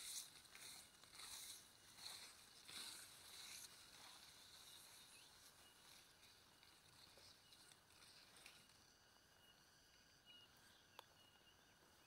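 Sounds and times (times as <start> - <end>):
soft rustles: 0.0 - 8.7.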